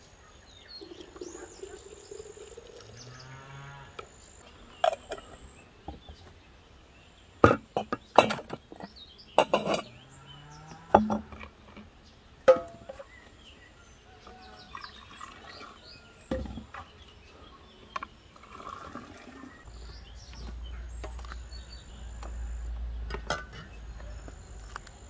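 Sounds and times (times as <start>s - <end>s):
birds chirping: 0.0s - 25.0s
cow mooing: 2.8s - 4.0s, 9.8s - 11.1s.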